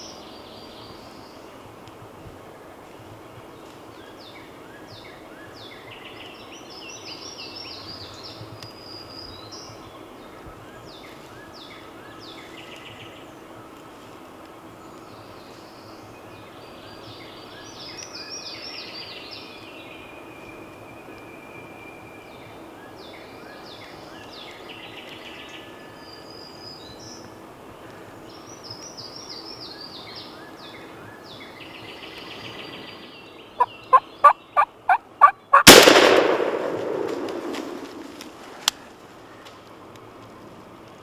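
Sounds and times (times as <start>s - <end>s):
songbirds singing: 0.0s - 41.0s
shotgun shot echoing: 35.6s - 38.4s.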